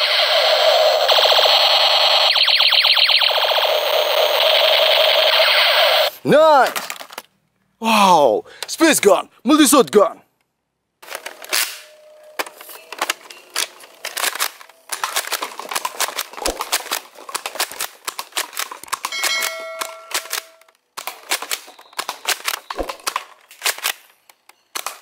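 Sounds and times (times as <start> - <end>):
toy blaster firing: 0.0 - 6.1, 14.2 - 23.9
short ringing tone: 19.1 - 20.7.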